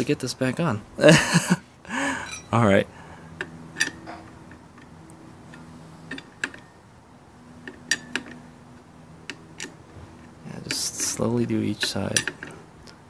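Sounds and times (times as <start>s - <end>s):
socket wrench clicking: 3.4s - 6.7s, 7.6s - 13.0s.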